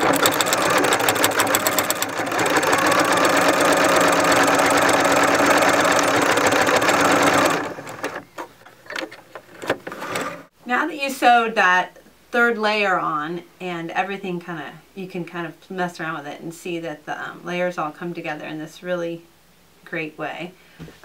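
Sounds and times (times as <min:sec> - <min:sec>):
electric sewing machine running: 0:00.0 - 0:08.2.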